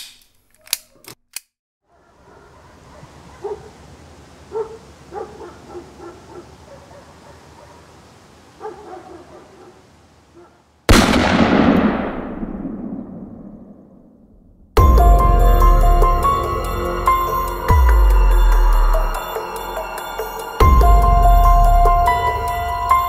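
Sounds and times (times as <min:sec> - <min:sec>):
dog barking faintly: 0:01.9 - 0:03.8, 0:04.5 - 0:08.0, 0:08.6 - 0:10.7
steady background hiss: 0:02.8 - 0:10.9
sudden loud boom: 0:10.9 - 0:15.2.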